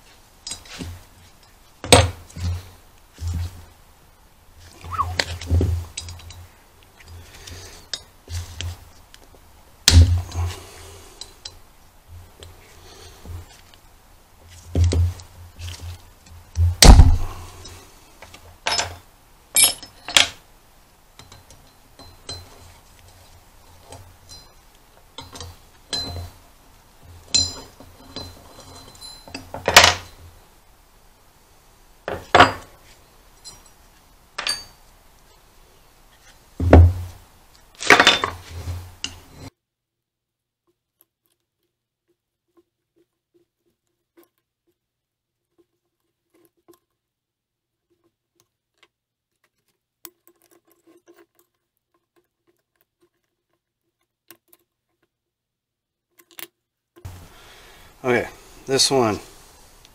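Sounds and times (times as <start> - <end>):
heavy thuds on wooden bench: 16.6 - 17.3, 36.6 - 37.1.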